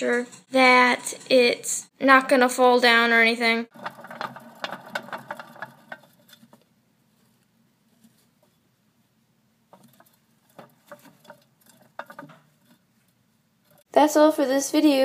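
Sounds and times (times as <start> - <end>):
gerbil running in plastic wheel: 3.7 - 6.6, 9.7 - 12.8.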